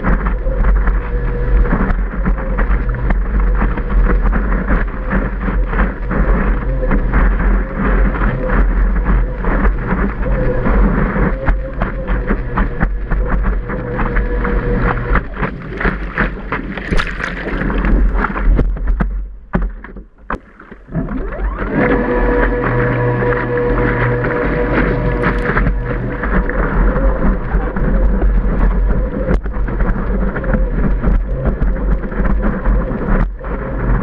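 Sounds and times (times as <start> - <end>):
whitewater rushing and splashing: 0.0 - 19.0, 20.4 - 34.0
electric jet drive whine: 0.1 - 16.5, 20.9 - 34.0
sharp splashes: 7.1 - 30.0.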